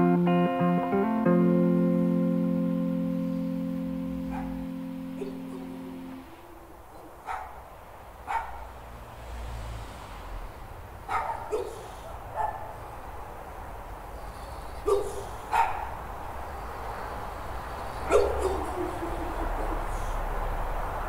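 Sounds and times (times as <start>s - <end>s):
dog barking: 4.2s - 6.2s, 6.9s - 8.8s, 11.0s - 12.9s, 14.8s - 16.1s, 18.0s - 20.2s.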